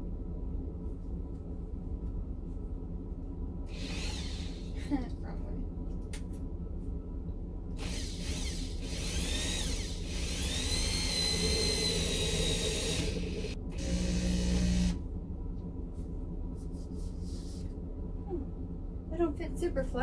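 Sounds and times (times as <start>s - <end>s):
drill driving screw: 3.7s - 4.7s, 7.8s - 15.0s.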